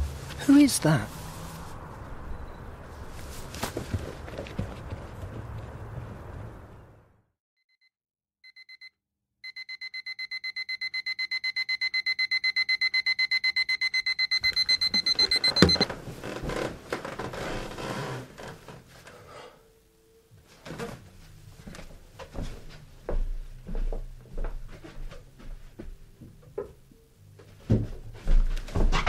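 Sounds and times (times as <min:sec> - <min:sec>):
rustling and knocks of movement: 0:02.8 - 0:06.8, 0:14.9 - 0:19.2, 0:20.4 - 0:29.0
alarm clock beeping: 0:08.4 - 0:15.9.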